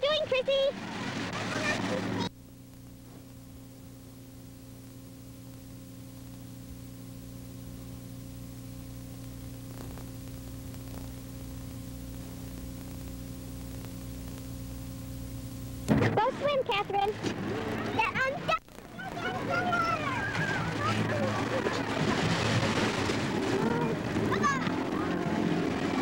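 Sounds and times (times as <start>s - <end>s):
electrical hum: 0.0s - 26.0s
faint clicks: 12.1s - 14.6s.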